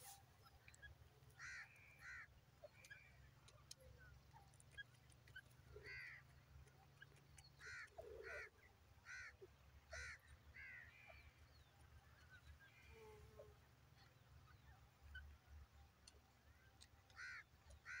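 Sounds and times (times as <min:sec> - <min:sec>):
bird harsh calls: 0:01.4 - 0:03.2, 0:07.0 - 0:11.3, 0:17.2 - 0:18.0.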